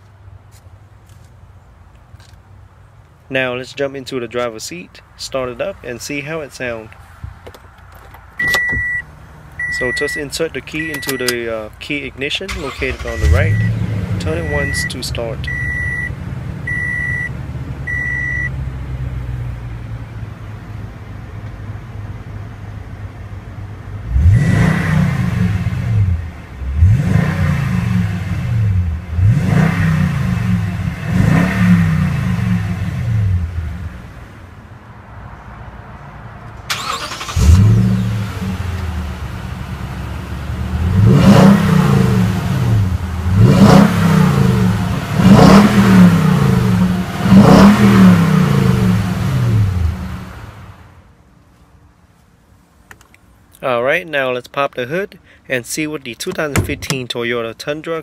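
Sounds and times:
truck engine idling and revving: 0:05.3 - 0:51.1.

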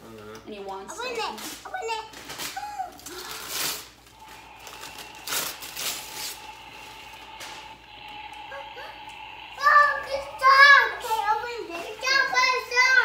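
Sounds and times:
paper tearing and crumpling: 0:02.1 - 0:04.1.

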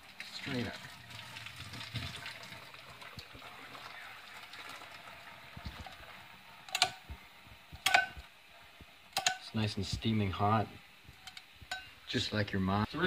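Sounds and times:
water pouring into sink strainer: 0:00.0 - 0:06.2.

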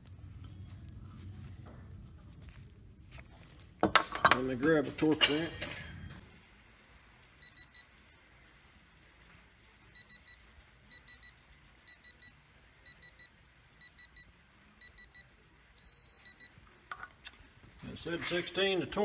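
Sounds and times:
long steady beep: 0:06.2 - 0:16.6
quick electronic beeps: 0:09.7 - 0:11.3.

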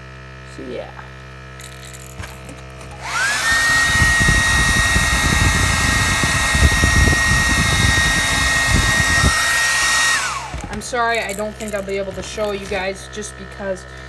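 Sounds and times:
hair dryer motor whine: 0:02.6 - 0:11.1.

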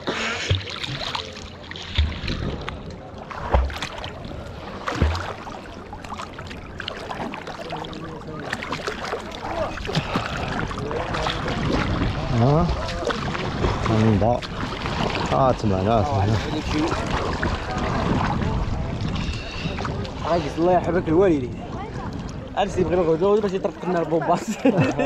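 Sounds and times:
water sloshing and splashing: 0:00.0 - 0:25.0
low thumps: 0:04.9 - 0:05.5
faint voices: 0:15.3 - 0:24.3.

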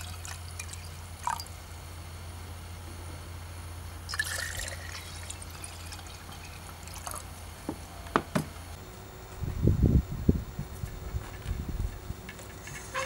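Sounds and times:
water dribbling into glass jars: 0:00.0 - 0:01.6, 0:04.1 - 0:07.3.

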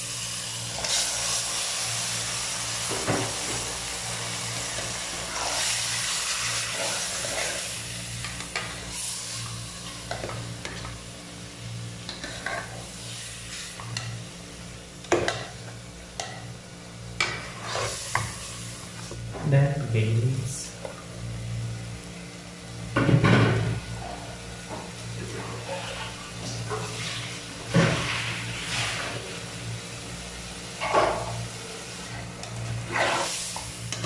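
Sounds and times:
chicken sizzling in hot oil: 0:00.0 - 0:16.0, 0:23.7 - 0:34.0.

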